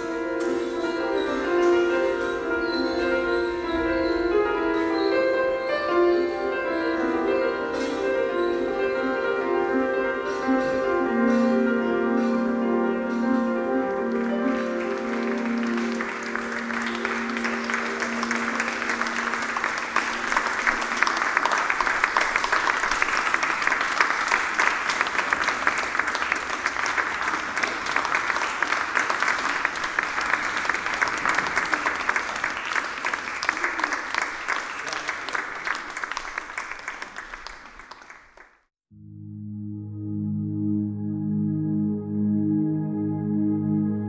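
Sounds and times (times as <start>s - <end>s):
grand piano notes ringing: 0.0s - 22.4s
audience applauding: 13.8s - 38.7s.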